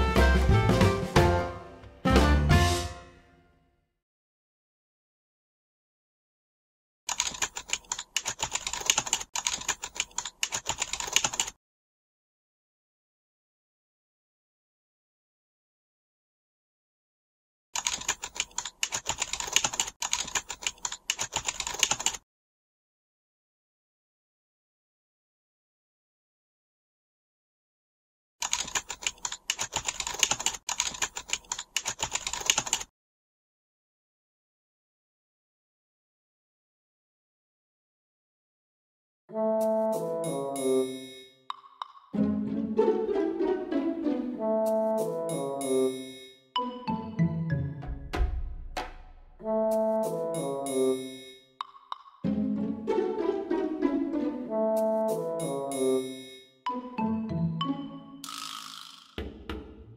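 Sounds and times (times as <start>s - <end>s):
computer keyboard typing: 7.1s - 11.6s, 17.8s - 22.2s, 28.4s - 32.9s.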